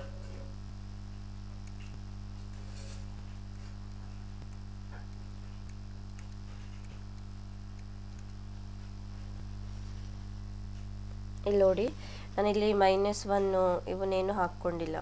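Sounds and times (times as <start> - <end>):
low electrical hum: 0.0 - 15.0
faint regular ticks: 0.5 - 9.9.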